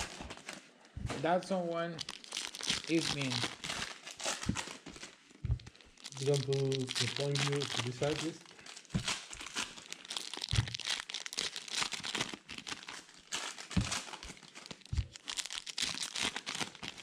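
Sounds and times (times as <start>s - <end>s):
foil wrappers crinkling and tearing: 0.0s - 17.0s
short low thumps: 5.4s - 5.7s.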